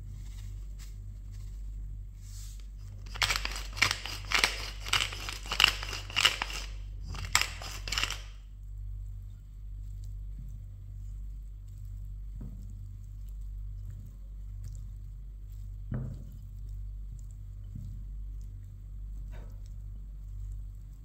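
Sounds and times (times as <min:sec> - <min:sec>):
pepper mill grinding: 0:02.9 - 0:08.4.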